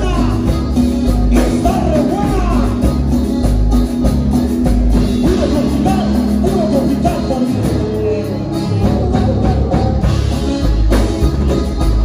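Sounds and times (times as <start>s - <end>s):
live band music: 0.0s - 12.0s
person singing: 5.2s - 10.7s.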